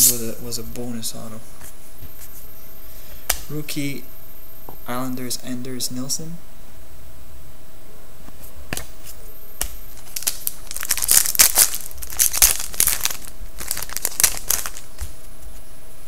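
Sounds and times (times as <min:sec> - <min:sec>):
foil wrapper tearing and crinkling: 0:09.9 - 0:15.2.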